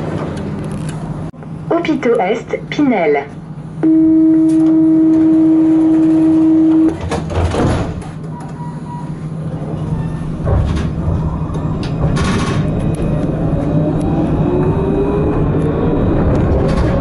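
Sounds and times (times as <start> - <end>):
tram motor whine: 0.0 - 17.0
door-closing warning tone: 3.8 - 7.6, 8.2 - 10.4.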